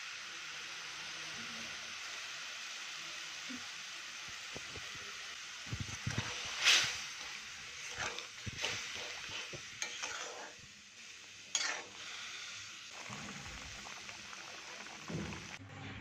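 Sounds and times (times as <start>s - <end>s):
syrup sizzling: 0.0s - 15.6s
spatula scraping: 5.8s - 10.7s, 11.5s - 12.1s.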